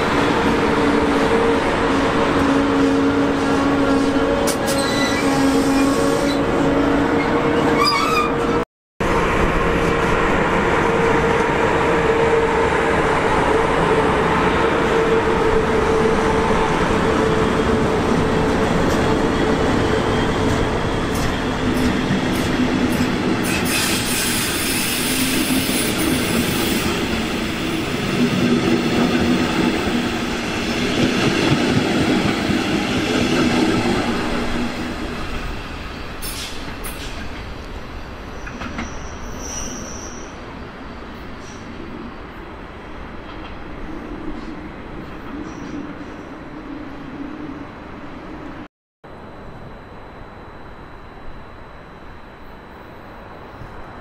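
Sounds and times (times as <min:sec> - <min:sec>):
train passing: 0:09.0 - 0:39.4
high hiss from train wheels: 0:21.7 - 0:27.9, 0:36.0 - 0:40.4.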